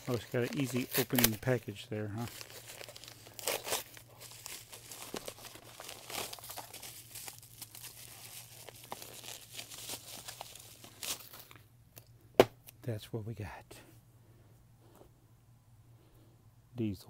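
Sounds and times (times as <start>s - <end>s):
package wrapping torn and crumpled: 0.0s - 11.6s.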